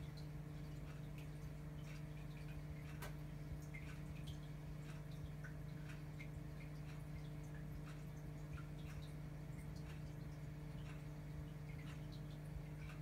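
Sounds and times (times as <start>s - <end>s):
aquarium filter pump humming: 0.0s - 13.0s
water dripping and trickling: 0.0s - 13.0s.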